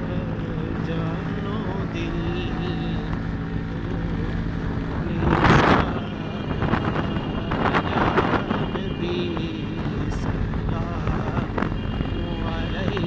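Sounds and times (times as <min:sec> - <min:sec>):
motorcycle engine running: 0:00.0 - 0:13.0
wind buffeting microphone: 0:02.8 - 0:13.0.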